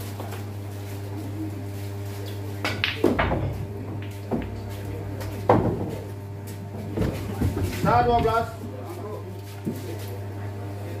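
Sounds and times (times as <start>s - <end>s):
steady low hum: 0.0s - 11.0s
pool balls clacking: 2.6s - 8.6s.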